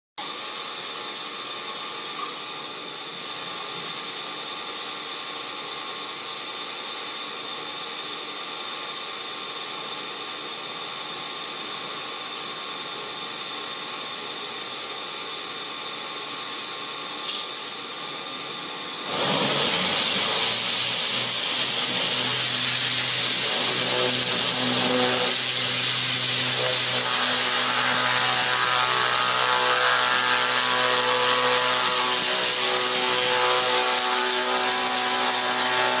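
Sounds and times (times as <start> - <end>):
pressure cleaner humming: 18.9 - 36.0
hissing water jet: 19.0 - 27.1.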